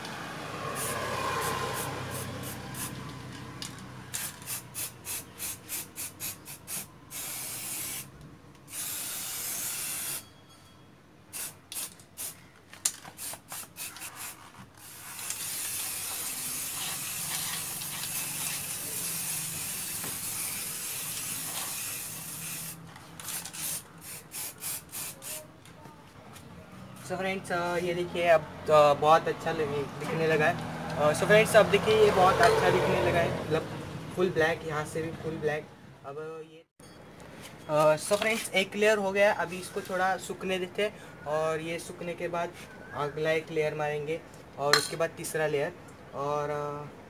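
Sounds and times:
spray paint can hissing: 0:00.8 - 0:03.1, 0:04.1 - 0:08.1, 0:08.7 - 0:10.2, 0:11.3 - 0:12.4, 0:13.0 - 0:25.5.

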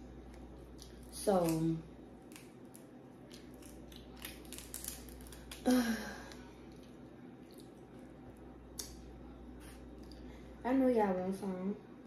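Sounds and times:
seafood shells cracking and chewing: 0:00.2 - 0:09.0.

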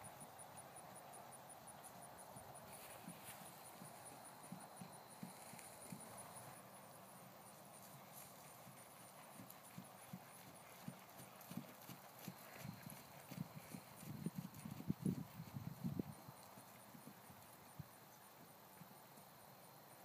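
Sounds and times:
hoofbeats on grass: 0:00.0 - 0:19.3.

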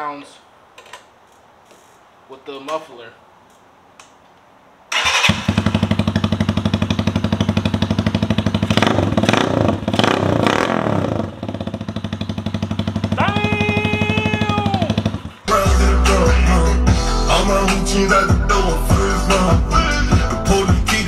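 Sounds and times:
motorcycle engine idling: 0:05.3 - 0:15.5.

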